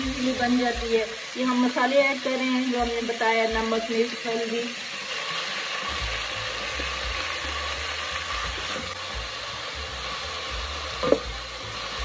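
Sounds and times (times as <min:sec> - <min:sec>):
spices sizzling in hot oil: 0:00.0 - 0:12.0.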